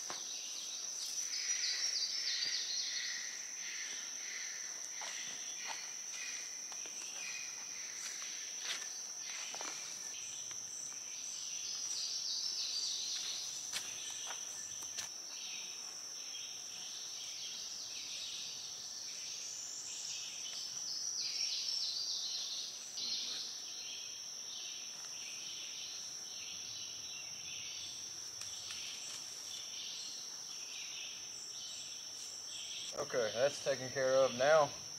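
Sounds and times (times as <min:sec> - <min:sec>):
insects buzzing trill: 0:00.0 - 0:34.9.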